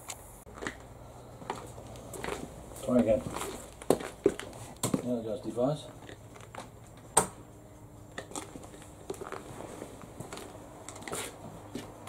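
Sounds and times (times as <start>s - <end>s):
sharp electrical clicks and crackles: 0.0s - 0.9s
transformer mains hum: 0.0s - 12.0s.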